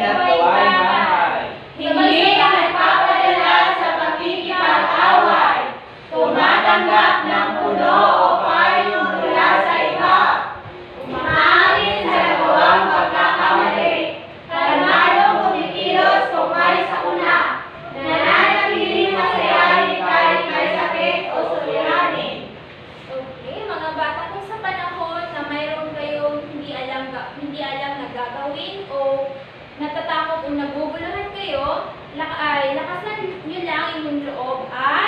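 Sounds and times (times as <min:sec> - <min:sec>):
students chanting in unison: 0:00.0 - 0:22.5.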